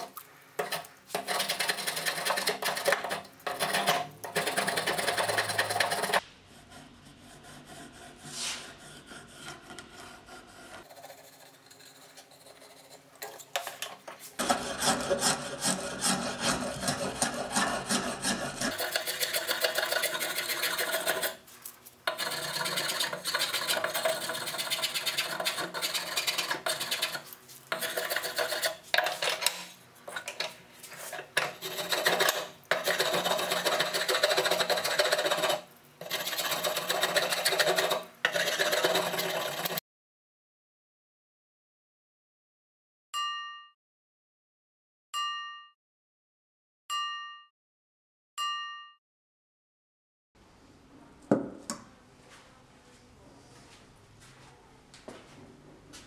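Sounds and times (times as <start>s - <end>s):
hand tool scraping wood: 0.0s - 39.8s.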